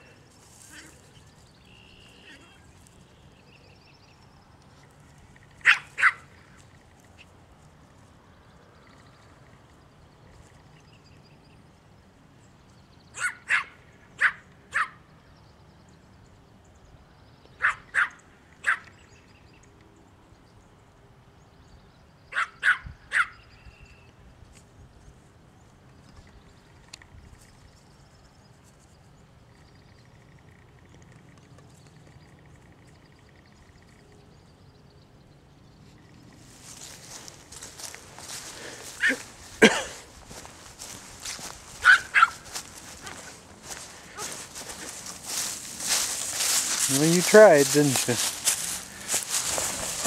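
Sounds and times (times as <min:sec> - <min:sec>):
small dog barking: 0:05.6 - 0:06.2, 0:13.2 - 0:15.0, 0:17.6 - 0:18.9, 0:22.3 - 0:23.4, 0:41.8 - 0:42.5.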